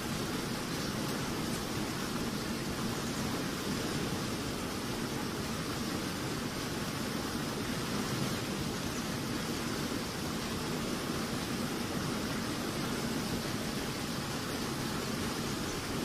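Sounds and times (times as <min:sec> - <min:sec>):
turbulent water rushing: 0:00.0 - 0:16.0.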